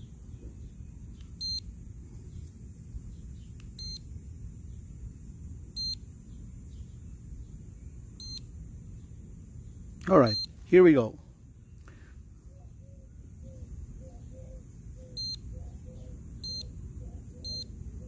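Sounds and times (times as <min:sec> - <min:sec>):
high electronic beeps: 0:01.4 - 0:01.6, 0:03.8 - 0:04.0, 0:05.8 - 0:06.0, 0:08.2 - 0:08.4, 0:10.3 - 0:10.6, 0:15.2 - 0:15.5, 0:16.4 - 0:16.7, 0:17.4 - 0:17.7.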